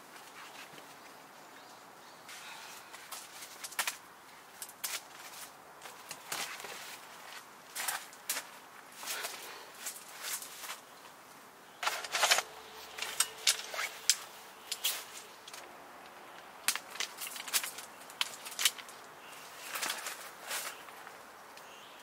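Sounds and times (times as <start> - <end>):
metal poles clacking: 11.8 - 20.9.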